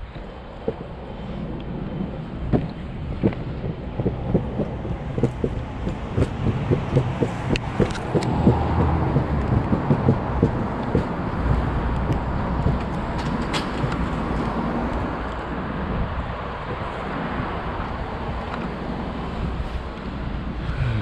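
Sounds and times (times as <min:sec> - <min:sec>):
low rolling rumble: 0:00.0 - 0:21.0
passing traffic: 0:00.0 - 0:21.0
skateboard wheels clacking: 0:02.5 - 0:15.1.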